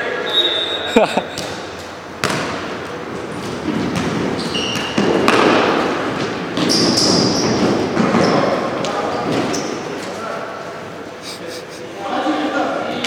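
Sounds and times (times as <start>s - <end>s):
sneakers squeaking on floor: 0.2s - 10.2s
ball kicked and bouncing on wood floor: 3.4s - 8.2s.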